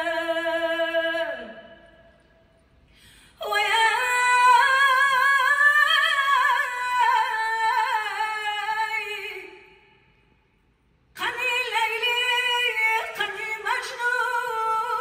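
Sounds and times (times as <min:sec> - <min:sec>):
woman singing unaccompanied: 0:00.0 - 0:01.8, 0:03.4 - 0:09.7, 0:11.2 - 0:15.0.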